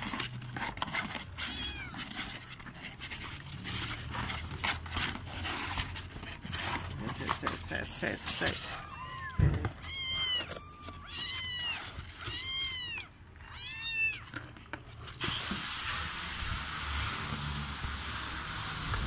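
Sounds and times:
kittens meowing: 0:01.4 - 0:02.3, 0:08.2 - 0:14.5.

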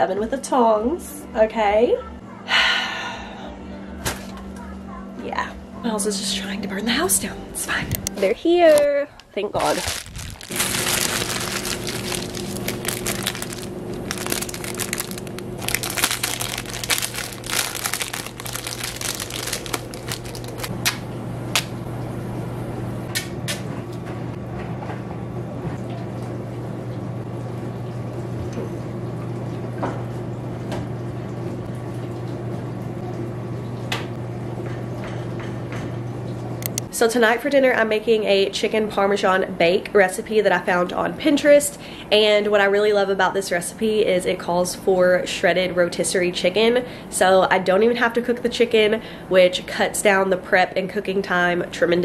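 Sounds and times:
steady low hum: 0:02.0 - 0:24.6
plastic packaging crinkling: 0:08.7 - 0:20.7.

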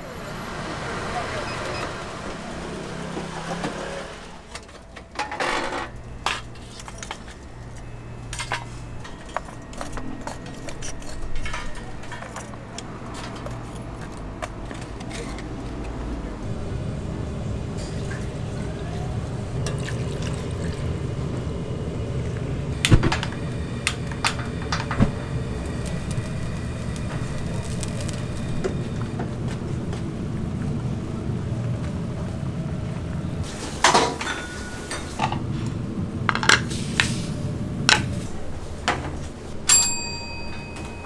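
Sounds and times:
restaurant background rumble: 0:00.0 - 0:41.0
utensils and dishes clinking: 0:04.5 - 0:15.8, 0:33.4 - 0:35.4, 0:38.9 - 0:41.0.

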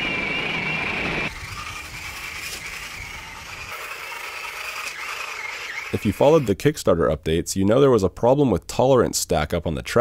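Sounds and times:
electric motors whining: 0:00.0 - 0:06.5.

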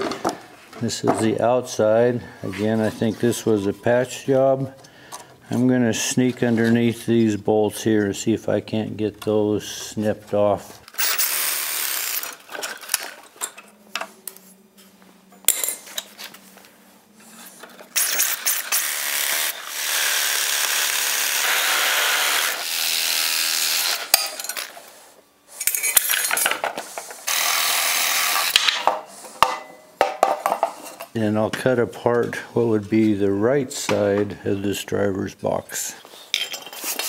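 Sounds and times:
reciprocating saw cutting bolts: 0:10.9 - 0:13.0, 0:17.9 - 0:24.8, 0:27.2 - 0:28.9.

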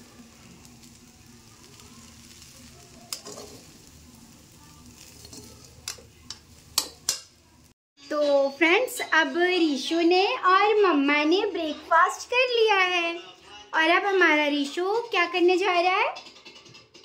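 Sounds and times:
food sizzling in a pan: 0:00.0 - 0:07.8
spatula scraping and clinking on pan: 0:01.7 - 0:03.8, 0:05.0 - 0:07.4.

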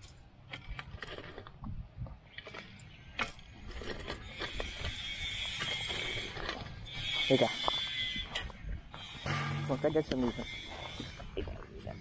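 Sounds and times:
soil scraping and clicking: 0:00.0 - 0:12.0
steady high buzz: 0:04.1 - 0:12.0.

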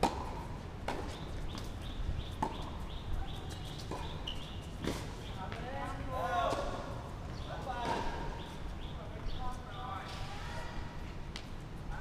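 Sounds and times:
tennis ball struck by racket: 0:00.0 - 0:01.2.

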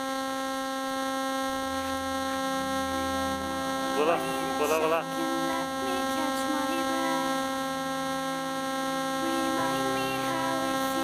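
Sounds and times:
electrical hum and whine: 0:00.0 - 0:11.0.

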